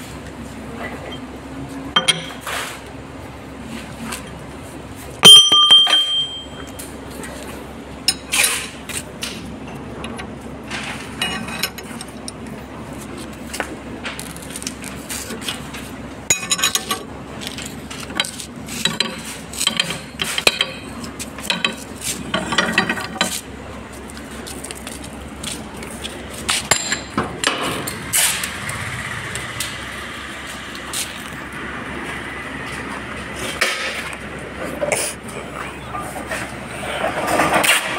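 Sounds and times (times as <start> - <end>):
metal clanks and clinks: 5.2 - 6.9, 9.6 - 12.5, 16.3 - 23.4, 26.5 - 28.5.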